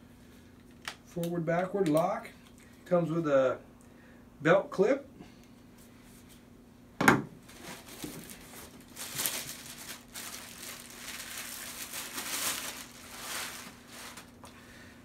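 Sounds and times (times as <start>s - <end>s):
plastic bag crinkling: 7.4s - 14.5s.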